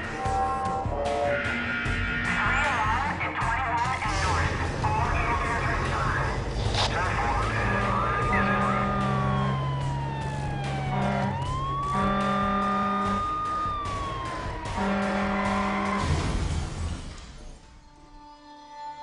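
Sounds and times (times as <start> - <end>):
fire truck siren wailing: 0.0 - 16.6
truck engine: 0.0 - 17.8
air horn blasts: 0.1 - 2.4, 7.6 - 9.4, 10.8 - 13.4, 14.7 - 16.1.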